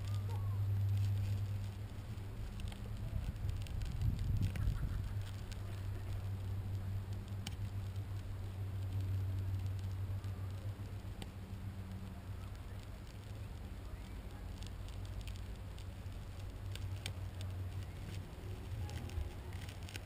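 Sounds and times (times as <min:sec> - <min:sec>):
light clicks and ticks: 0:00.0 - 0:20.0
low mechanical hum: 0:00.0 - 0:20.0.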